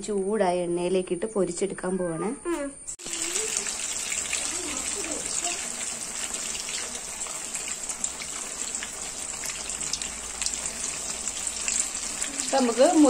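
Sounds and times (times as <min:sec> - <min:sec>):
food deep-frying in oil: 0:03.0 - 0:13.0.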